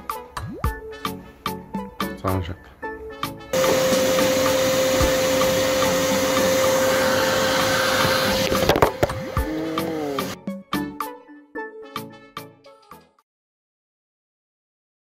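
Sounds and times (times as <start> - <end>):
angle grinder on sheet metal: 3.6 - 10.4.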